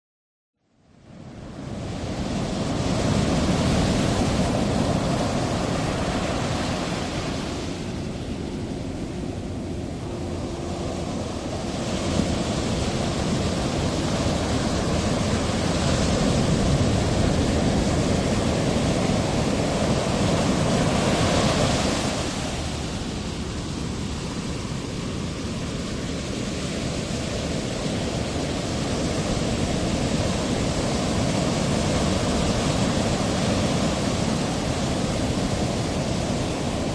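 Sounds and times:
waves breaking: 0:01.4 - 0:36.9.

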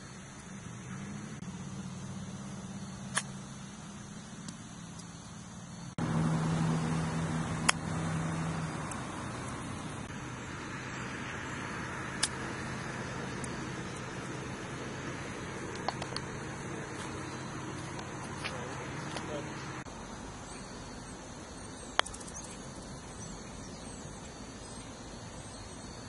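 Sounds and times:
low motor hum: 0:00.0 - 0:26.0
golf club striking ball: 0:07.4 - 0:08.0, 0:12.1 - 0:14.4, 0:15.6 - 0:18.3, 0:21.9 - 0:22.2.

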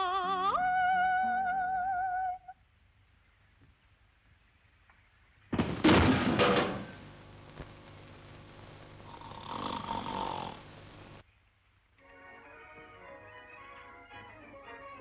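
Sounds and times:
man snoring: 0:09.1 - 0:10.7.

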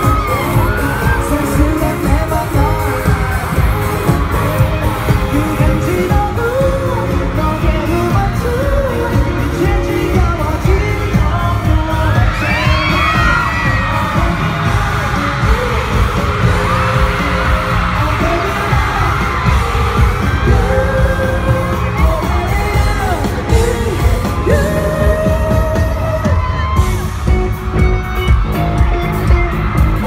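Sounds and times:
electric bass: 0:00.0 - 0:25.9
man singing: 0:00.0 - 0:27.1
steady drum beat: 0:00.0 - 0:30.0.

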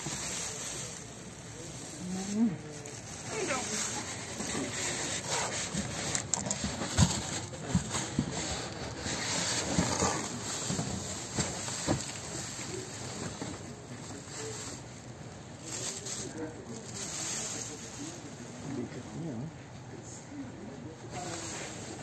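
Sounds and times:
plastic wrapping crinkling: 0:00.0 - 0:19.0
cardboard box scraping: 0:03.3 - 0:12.4.

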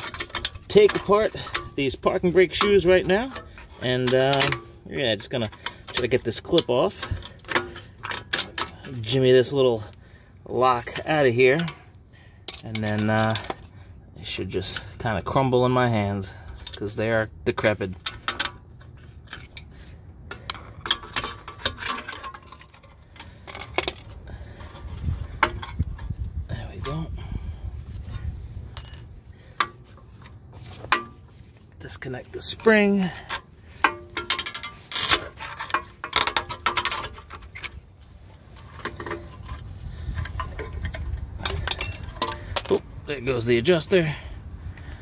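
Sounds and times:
screwdriver clinking on metal: 0:00.0 - 0:04.8, 0:20.3 - 0:24.0, 0:28.8 - 0:29.1, 0:33.1 - 0:37.9, 0:38.6 - 0:42.8
metallic clinks from hand tool: 0:28.8 - 0:29.1.

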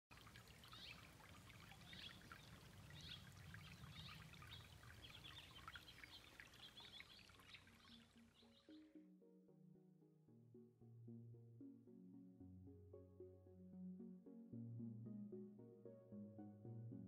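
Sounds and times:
creek trickling over stones: 0:00.1 - 0:08.8
bird chirping: 0:00.6 - 0:08.9.

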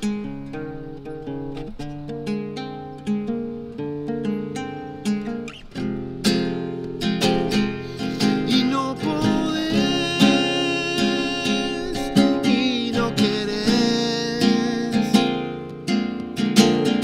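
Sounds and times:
acoustic guitar playing: 0:00.0 - 0:17.0.

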